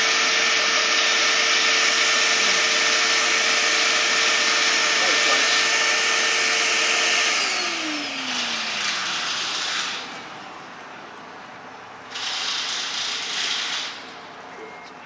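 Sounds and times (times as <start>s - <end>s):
vacuum motor winding down: 0.0s - 10.2s.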